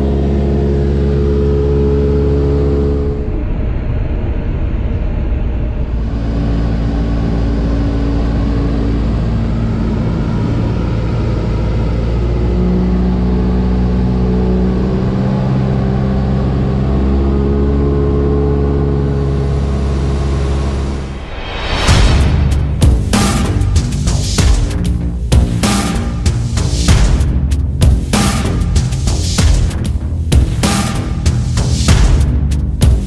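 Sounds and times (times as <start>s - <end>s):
propeller plane engine in cockpit: 0.0s - 21.2s.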